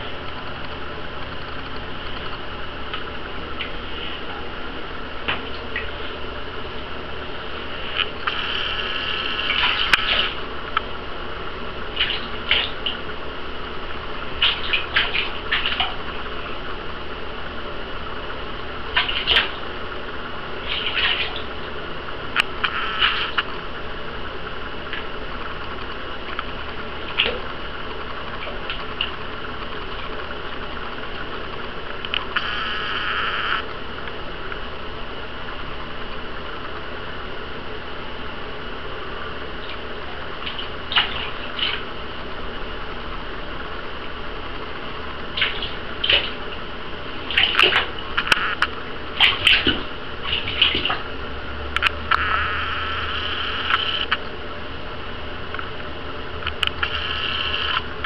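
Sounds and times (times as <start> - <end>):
low hum: 0.0 - 58.0
bathwater splashing and lapping: 9.3 - 10.5, 11.8 - 13.2, 14.2 - 16.6, 18.9 - 19.7, 20.6 - 21.8, 39.6 - 41.9, 45.2 - 48.3, 49.1 - 51.2
sharp clicks: 45.4 - 46.3.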